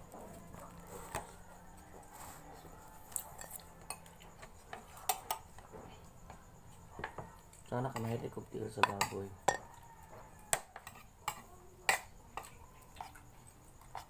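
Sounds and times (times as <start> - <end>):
metal spoon clinking on metal plate: 3.4 - 5.5, 7.9 - 9.7.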